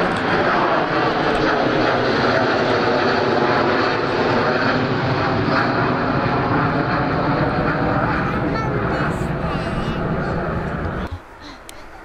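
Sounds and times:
jet engines at climb power: 0.0s - 11.8s.

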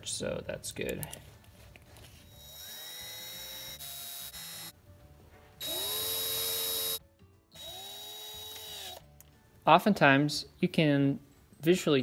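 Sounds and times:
cordless drill whining: 2.3s - 4.7s, 5.6s - 9.0s.

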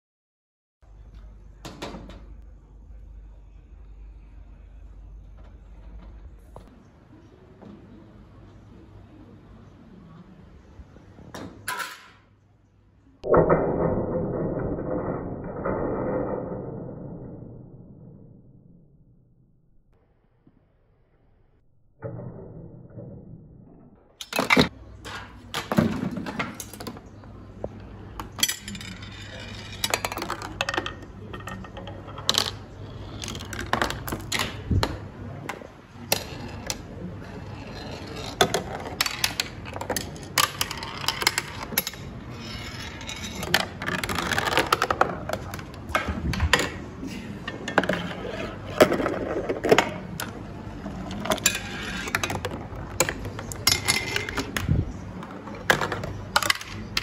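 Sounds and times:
marbles rolling along tracks: 28.2s - 34.7s, 36.1s - 45.9s
marble rolling round plastic funnel: 28.2s - 35.1s, 35.9s - 46.7s, 47.7s - 57.0s.

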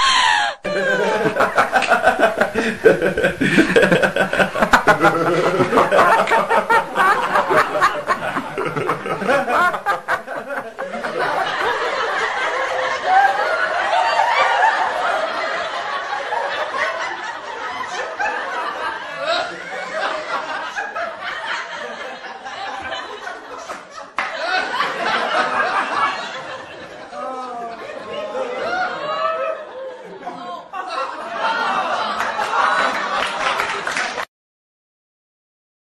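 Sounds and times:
person chuckling and giggling: 0.1s - 11.0s.

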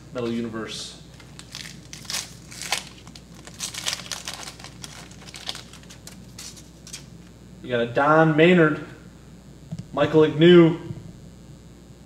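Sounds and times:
foil wrapper crinkling: 1.1s - 7.2s.

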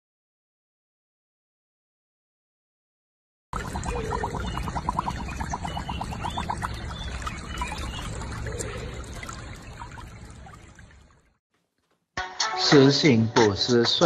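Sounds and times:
patter of splashes: 3.6s - 11.4s
water sloshing and trickling: 3.6s - 11.4s.

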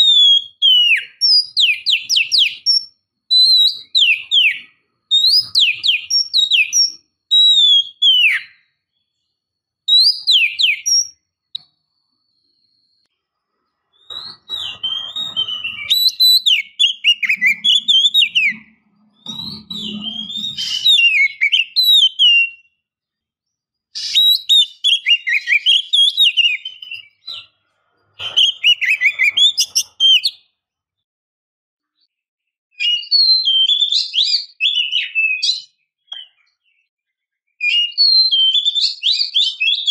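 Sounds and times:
songbird singing: 0.0s - 27.6s, 28.2s - 30.5s.

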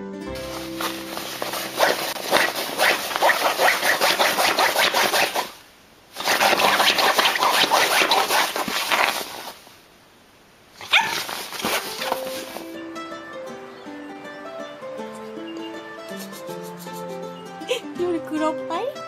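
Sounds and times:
dog whimpering and yipping: 10.8s - 12.6s.

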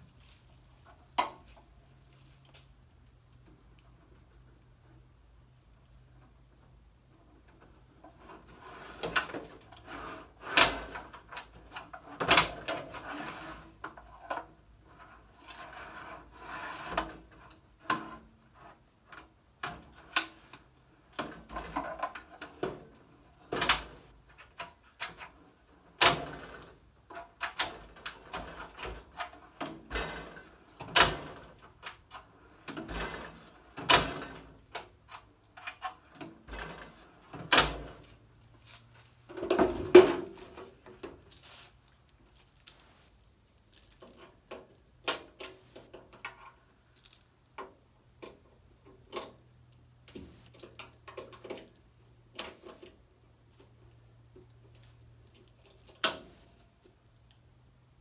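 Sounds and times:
steel drawer sliding on metal slides: 8.2s - 13.8s, 15.3s - 17.4s.

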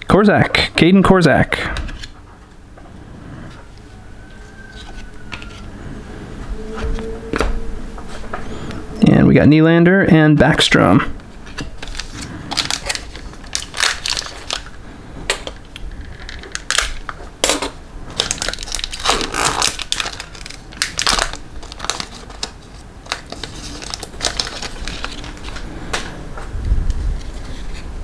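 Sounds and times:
plastic packaging crinkling: 11.4s - 26.2s.

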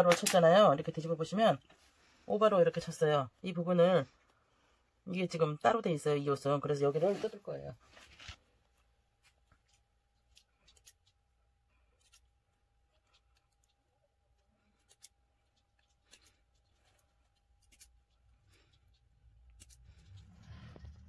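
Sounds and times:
small scissors snipping: 9.6s - 11.2s, 14.8s - 20.3s.

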